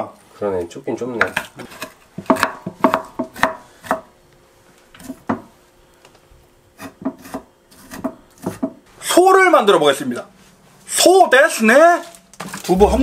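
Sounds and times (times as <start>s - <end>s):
knife chopping on wooden board: 1.2s - 4.1s, 6.8s - 8.8s.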